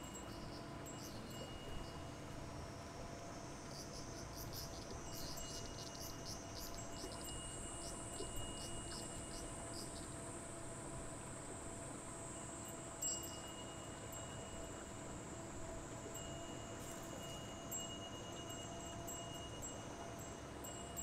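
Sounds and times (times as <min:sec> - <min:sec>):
insects buzzing: 0:00.0 - 0:17.9
steady low hum: 0:00.0 - 0:21.0.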